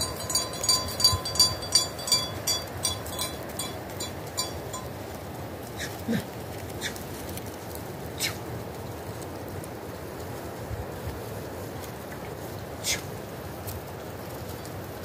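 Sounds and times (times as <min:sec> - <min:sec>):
small metal bell jingling: 0:00.0 - 0:05.0.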